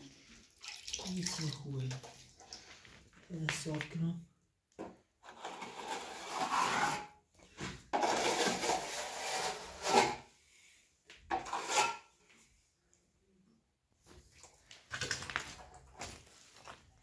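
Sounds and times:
trowel scraping plaster wall: 0:05.2 - 0:10.4, 0:11.3 - 0:12.2.

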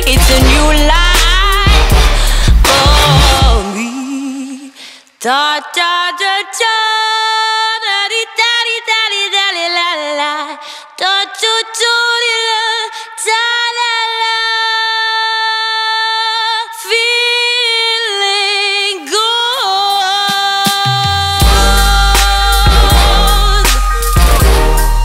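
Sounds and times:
woman singing with vibrato: 0:00.0 - 0:25.0.

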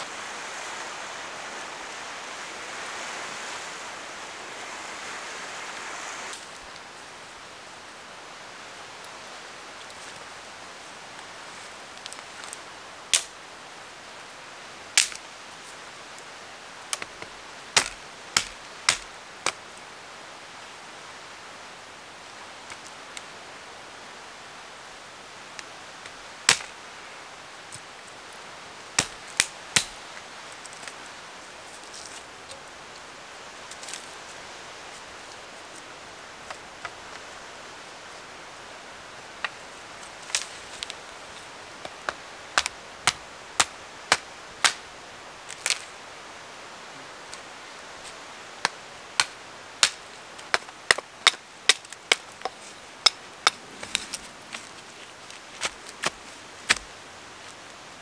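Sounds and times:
steady hiss: 0:00.0 - 0:58.0
axe chopping wood: 0:17.8 - 0:19.6, 0:41.8 - 0:44.8.

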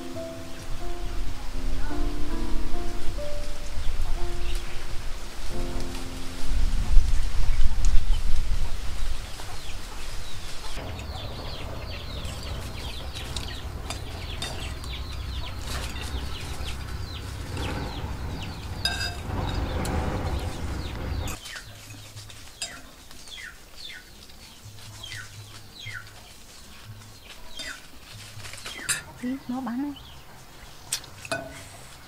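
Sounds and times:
loud rush of noise: 0:00.0 - 0:21.4
low rumble: 0:00.0 - 0:21.4
chicks peeping: 0:00.0 - 0:32.0
chickens clucking: 0:08.6 - 0:32.0
fork clinking on plate: 0:31.3 - 0:31.7.

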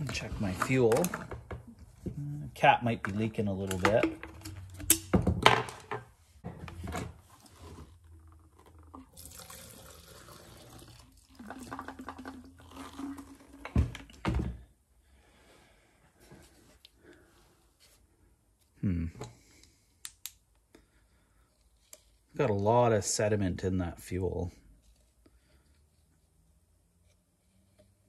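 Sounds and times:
liquid pouring into plastic cup: 0:08.0 - 0:14.2.

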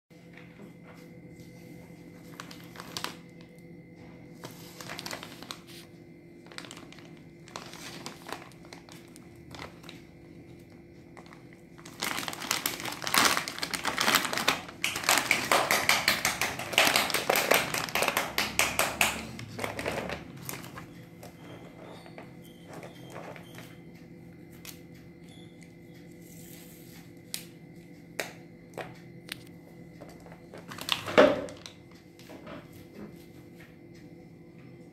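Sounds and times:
plastic packet crinkling: 0:02.3 - 0:03.4, 0:04.4 - 0:20.8, 0:30.2 - 0:31.7
taps on plastic packet: 0:11.2 - 0:20.6.

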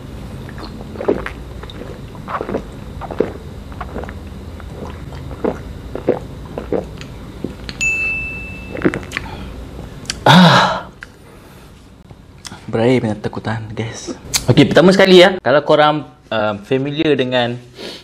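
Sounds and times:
man gulping drink: 0:00.4 - 0:07.8
short high ding: 0:07.8 - 0:09.0
man sighing aah: 0:10.2 - 0:11.0.

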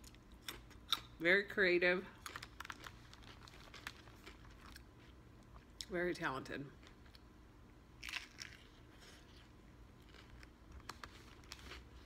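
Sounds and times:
faint chewing: 0:02.2 - 0:05.9
sandwich bite crunch: 0:08.0 - 0:12.0.

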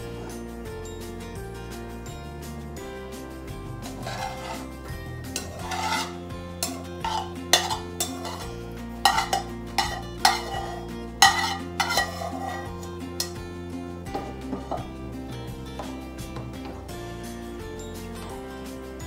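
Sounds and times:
metal spatula scraping pan: 0:03.8 - 0:13.4, 0:14.1 - 0:14.9
metal clinks on pan: 0:05.3 - 0:12.6.

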